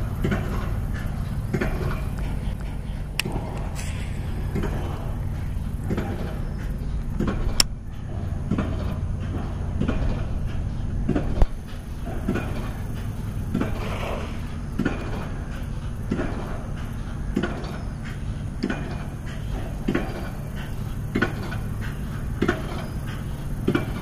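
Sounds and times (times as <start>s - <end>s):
low rumble: 0.0s - 17.2s.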